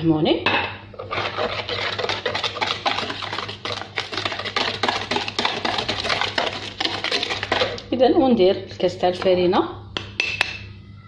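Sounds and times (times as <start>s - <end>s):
whisk clicking against bowl: 1.1s - 7.9s.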